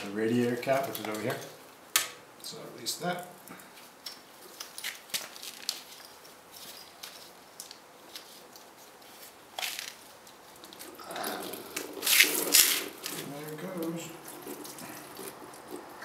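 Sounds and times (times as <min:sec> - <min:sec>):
coolant trickling: 0:09.8 - 0:16.0.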